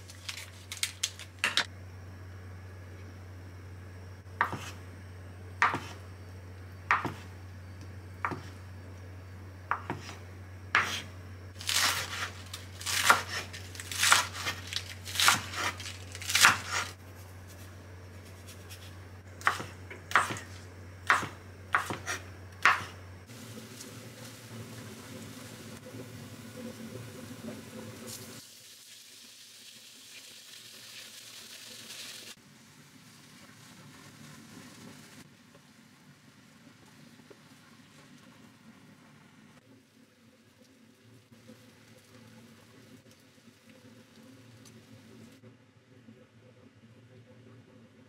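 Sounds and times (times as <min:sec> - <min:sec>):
knife chopping on cutting board: 0:04.4 - 0:04.8, 0:05.6 - 0:06.0, 0:06.9 - 0:07.3, 0:08.2 - 0:08.5, 0:09.7 - 0:10.2, 0:10.8 - 0:11.0, 0:19.4 - 0:20.5, 0:21.1 - 0:23.0.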